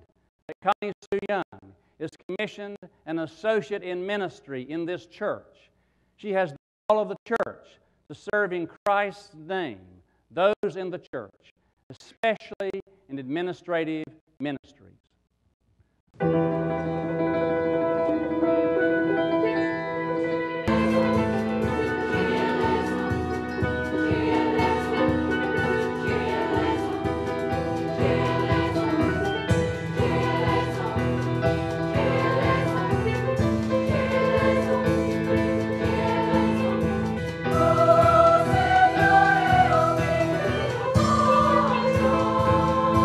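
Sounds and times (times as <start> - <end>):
choir singing a hymn: 20.7 - 43.0.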